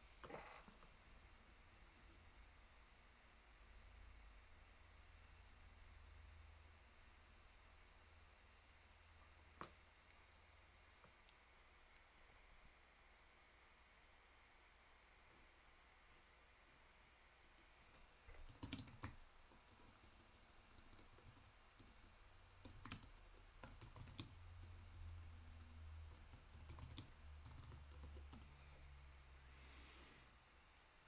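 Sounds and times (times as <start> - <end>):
keyboard typing and clicks: 17.4 - 28.6.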